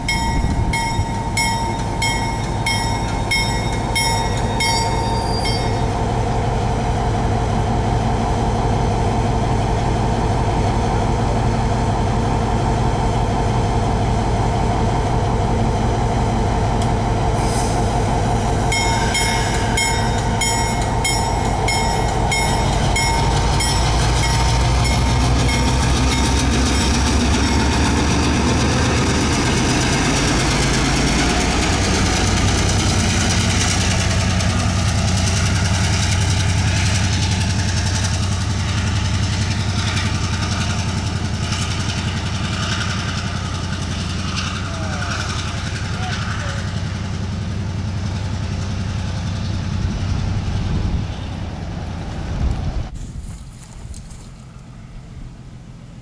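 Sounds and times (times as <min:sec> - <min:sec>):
diesel locomotive engine running: 0:00.0 - 0:56.0
rapid high ringing bell: 0:00.1 - 0:05.8.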